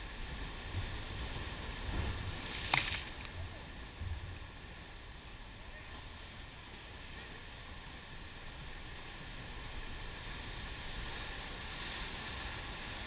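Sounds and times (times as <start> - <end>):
surf breaking over rocks: 0.0 - 4.1.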